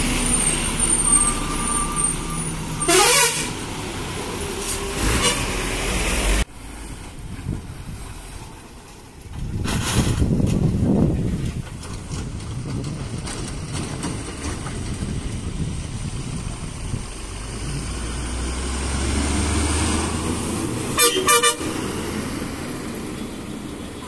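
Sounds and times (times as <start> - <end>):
diesel lorry engine: 0.0 - 24.0
horn blasts: 2.8 - 3.6, 5.0 - 5.6, 21.0 - 21.8.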